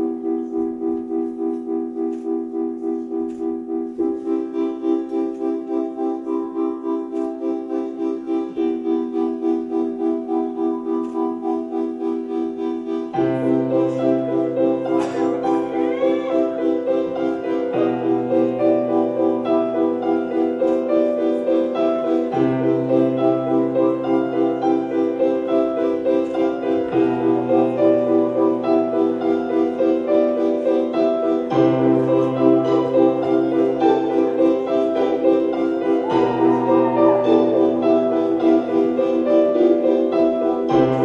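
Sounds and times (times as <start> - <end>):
repeated piano chords: 0.0 - 41.0.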